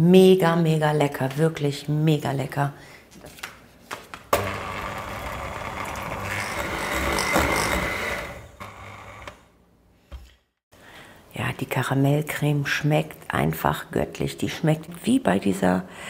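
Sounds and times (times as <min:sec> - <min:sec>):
electric hand mixer running: 0:04.4 - 0:09.5.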